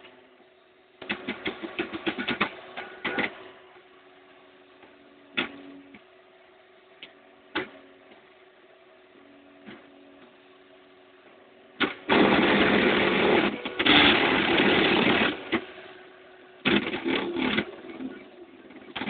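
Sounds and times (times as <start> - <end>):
faint motor hum: 0.0 - 19.0.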